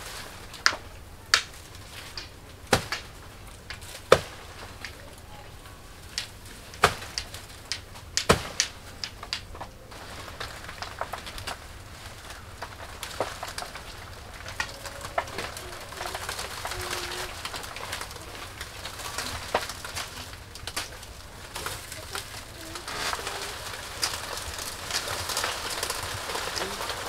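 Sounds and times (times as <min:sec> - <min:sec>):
blade chopping banana plant: 0:00.2 - 0:05.0, 0:06.1 - 0:11.6.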